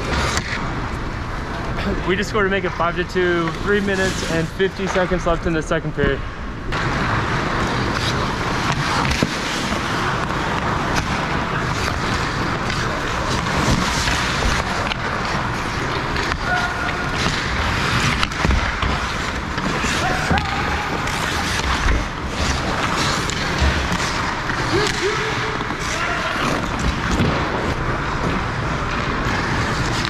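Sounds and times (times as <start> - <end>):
skate blades scraping ice: 0.0 - 5.7, 6.7 - 30.0
hockey sticks and puck clacking: 0.0 - 30.0
players calling out: 15.7 - 18.4, 19.6 - 27.1.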